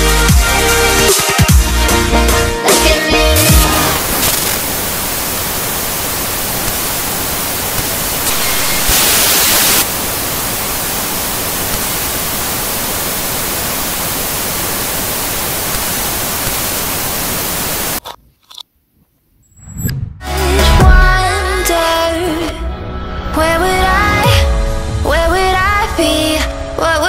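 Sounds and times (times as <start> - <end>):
static hiss: 3.4 - 18.2.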